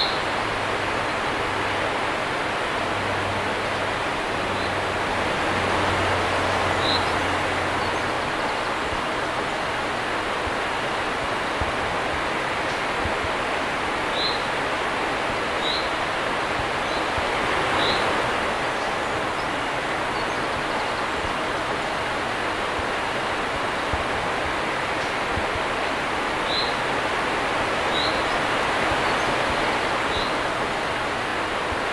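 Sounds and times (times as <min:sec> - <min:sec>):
water rushing over weir: 0:00.0 - 0:31.9
bird chirping: 0:17.8 - 0:18.0.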